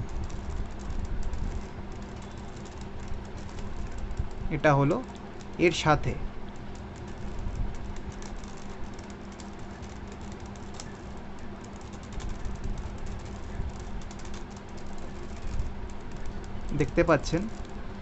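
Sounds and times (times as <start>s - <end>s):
puzzle cube layers clicking: 6.5s - 17.8s.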